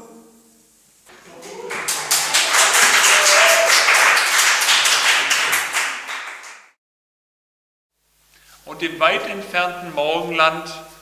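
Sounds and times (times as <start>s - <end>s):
people clapping: 1.1s - 6.8s.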